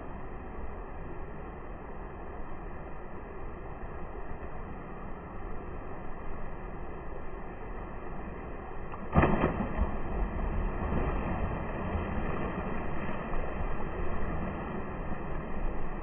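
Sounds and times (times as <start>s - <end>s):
low rush of churning water: 0.0s - 16.0s
loud splash into pool: 8.9s - 13.6s.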